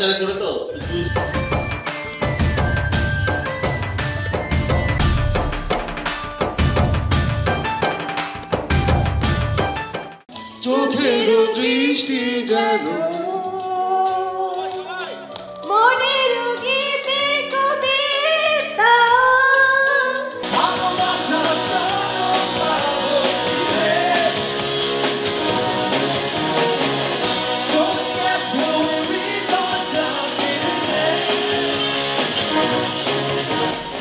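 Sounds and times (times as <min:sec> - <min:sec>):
band with drums and electric guitar: 0:00.8 - 0:10.3, 0:20.4 - 0:34.0
person singing: 0:10.4 - 0:24.8, 0:27.6 - 0:32.0.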